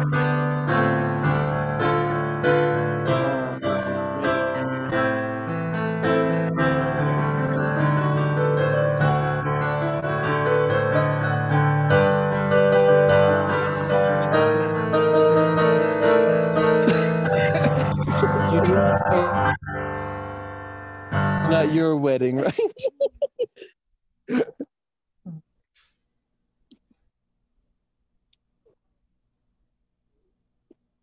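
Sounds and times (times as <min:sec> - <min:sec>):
piano chords: 0:00.0 - 0:22.6.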